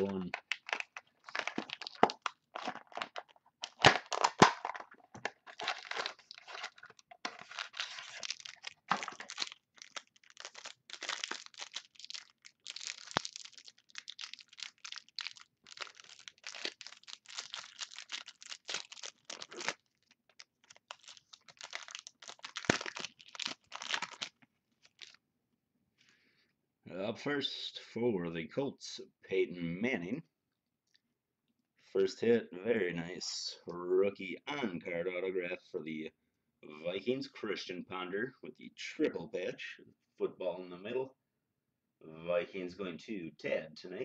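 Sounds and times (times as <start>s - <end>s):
card pack ripped open: 0.0s - 25.2s
plastic wrapping crinkling and tearing: 0.0s - 25.2s.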